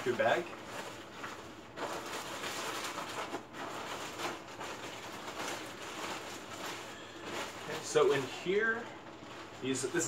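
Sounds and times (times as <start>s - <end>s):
plastic bag rustling: 0.0s - 10.0s.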